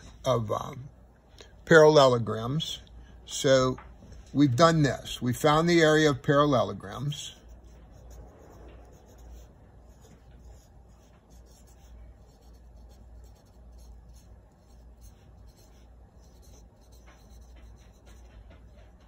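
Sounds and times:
low steady hum: 0.0 - 19.0
pen scratching: 7.3 - 19.0.

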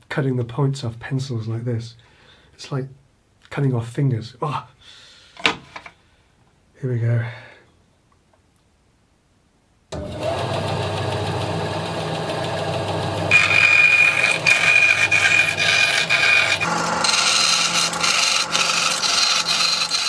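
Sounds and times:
bandsaw cutting wooden pencils: 10.0 - 20.0
bandsaw running: 10.0 - 20.0.

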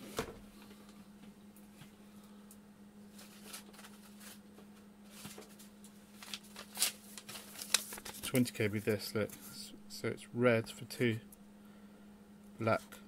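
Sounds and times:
steady low hum: 0.0 - 13.0
small parts and paper rustling: 3.1 - 9.4.

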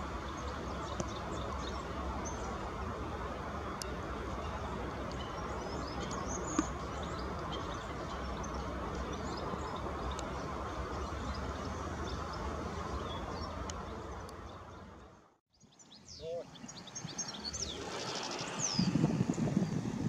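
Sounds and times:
steady background noise: 0.0 - 15.3.

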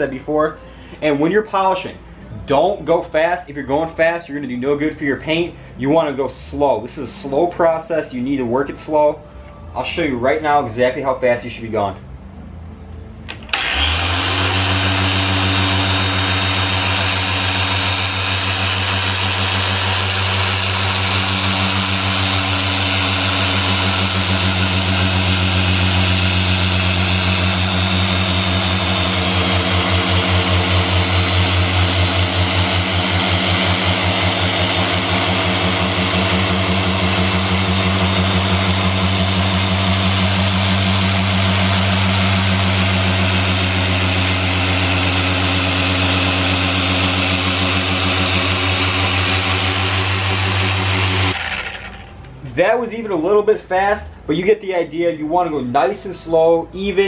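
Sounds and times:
electric polisher running: 13.3 - 52.3.

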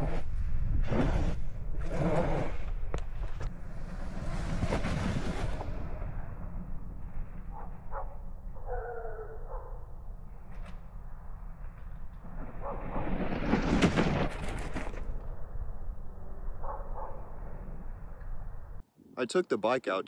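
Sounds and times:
tire sliding through snow: 0.0 - 7.5.

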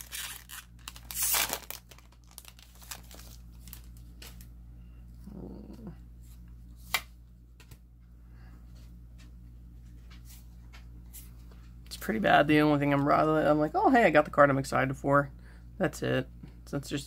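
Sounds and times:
foil wrapper crinkling and tearing: 0.0 - 4.5
handling trading cards: 0.0 - 4.6.

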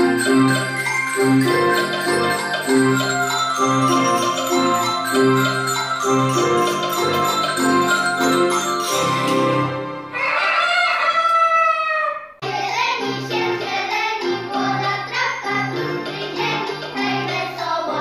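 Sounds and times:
metallophones struck with mallets: 0.0 - 10.1
instrumental accompaniment: 0.0 - 10.2, 12.5 - 17.7
children singing together: 12.4 - 18.0.

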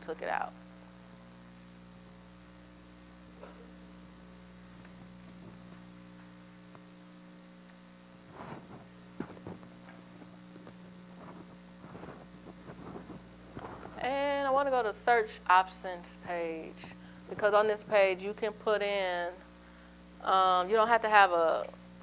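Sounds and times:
electrical mains hum: 0.0 - 22.0.

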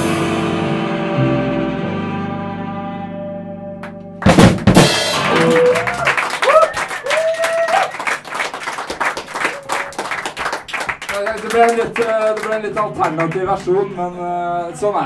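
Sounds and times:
rock band playing: 0.0 - 6.2
crowd clapping: 3.8 - 13.8
crowd whooping: 5.1 - 10.4.

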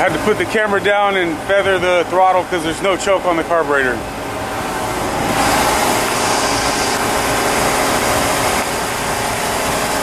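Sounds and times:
boat engine running: 4.0 - 10.0.

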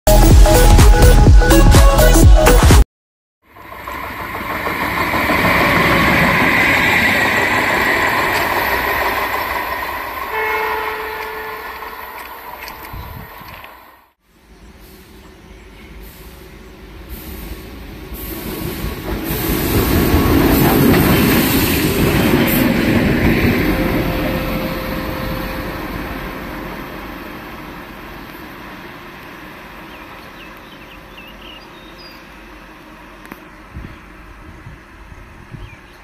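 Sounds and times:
train wheels rumbling on rail: 3.5 - 36.0.

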